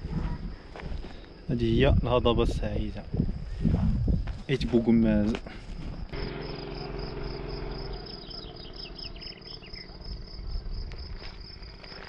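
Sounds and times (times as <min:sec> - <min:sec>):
crickets chirping: 0:00.0 - 0:12.0
low hum: 0:06.1 - 0:11.4
bird chirps: 0:06.2 - 0:10.7.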